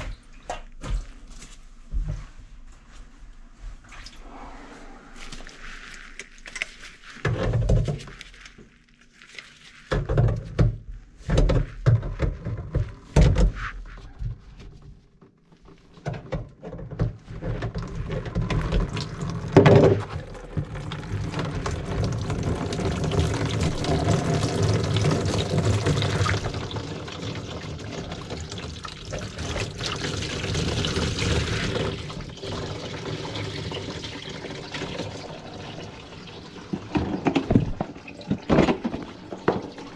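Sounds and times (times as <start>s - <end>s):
water pouring into plastic bowl: 17.6s - 39.9s.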